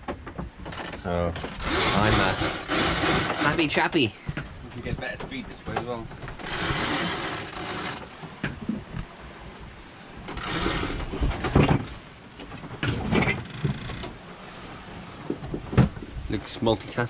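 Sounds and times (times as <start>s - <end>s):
rigging hardware knocking: 0.0s - 3.7s.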